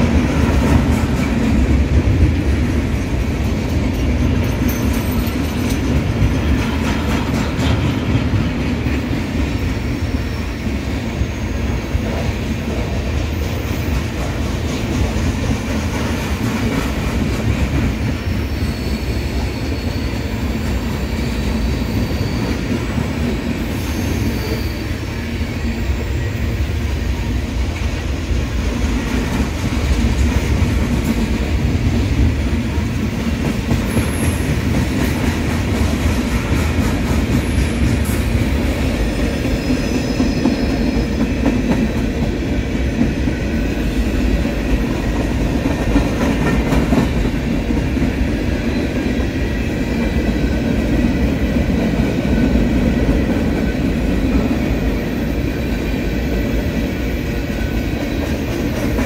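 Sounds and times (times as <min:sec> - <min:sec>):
freight train rumbling: 0:00.0 - 0:59.0
high wheel squeals: 0:18.2 - 0:22.9.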